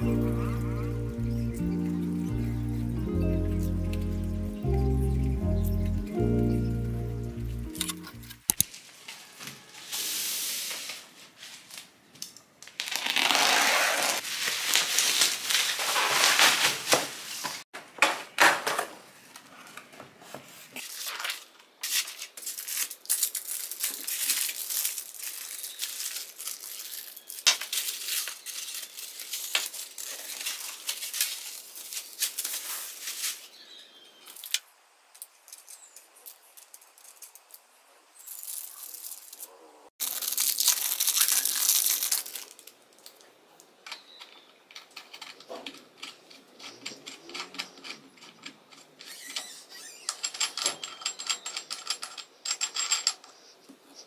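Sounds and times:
plastic wrapping tearing and crinkling: 12.6 - 17.7, 20.8 - 33.5, 38.2 - 43.2.

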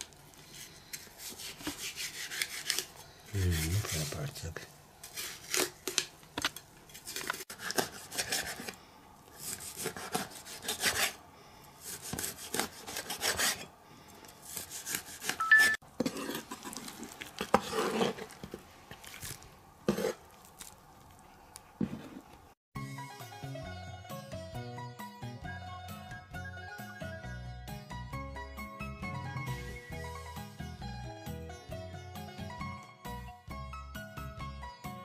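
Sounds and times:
cleaver scraping through fish: 0.4 - 4.3, 6.9 - 8.8, 11.8 - 13.7, 14.3 - 20.8.

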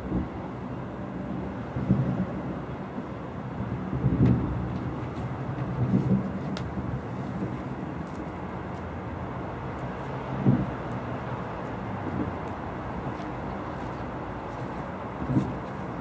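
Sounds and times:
distant fireworks booming: 10.4 - 10.9.

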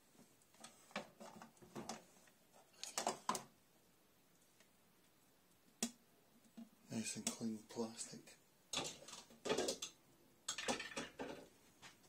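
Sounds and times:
plastic dishes rattling in rack: 8.7 - 11.5.

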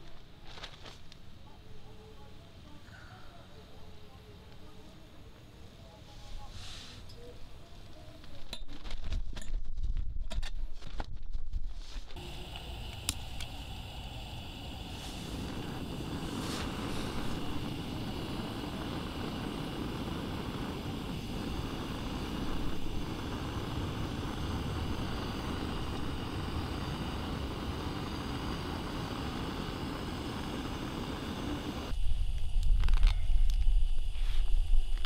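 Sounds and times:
gas torch flame hissing: 12.2 - 35.0.

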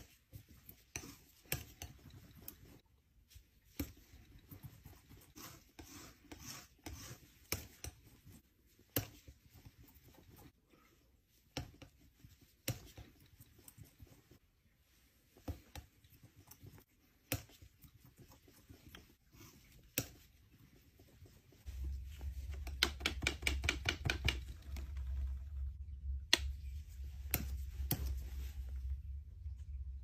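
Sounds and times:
palette knife scraping paint: 0.0 - 2.8, 3.8 - 10.6
steady low hum: 24.4 - 30.0.

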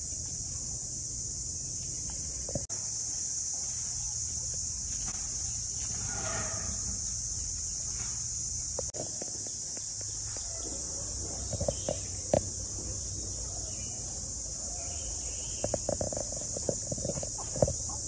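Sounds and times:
high-pitched insect drone: 0.0 - 18.0
chickens clucking: 15.5 - 18.0.

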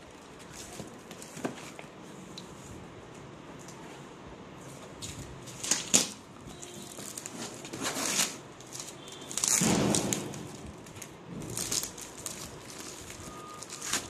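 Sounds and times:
plastic wrapping crinkling: 5.0 - 14.0.

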